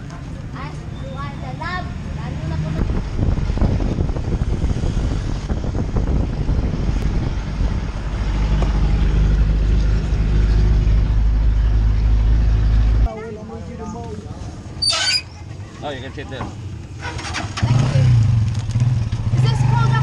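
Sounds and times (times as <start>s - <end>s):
road noise: 0.0s - 20.0s.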